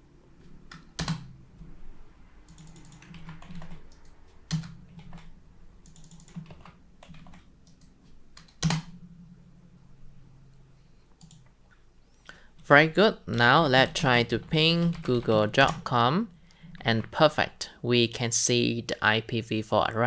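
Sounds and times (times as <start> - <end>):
keyboard typing clicks: 0.4 - 1.4, 2.4 - 9.0, 11.2 - 11.8.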